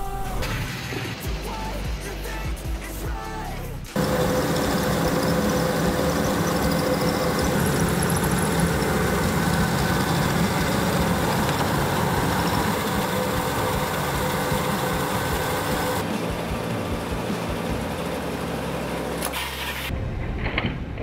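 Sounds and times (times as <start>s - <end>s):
toy motors and gears: 4.0s - 17.9s
treadmill motor whirring: 4.0s - 19.4s.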